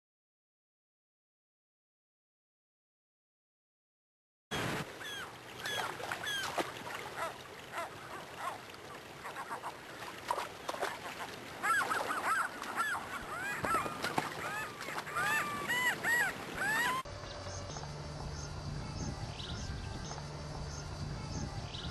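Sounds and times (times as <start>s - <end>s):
shallow river rushing: 4.5s - 17.1s
gulls calling: 4.5s - 17.8s.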